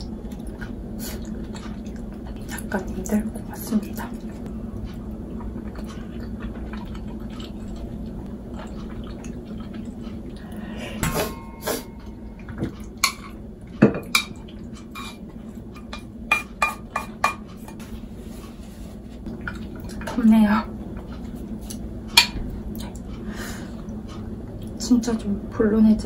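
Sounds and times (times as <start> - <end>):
steady low hum: 0.0 - 26.0
utensils clinking against pot: 11.0 - 15.2.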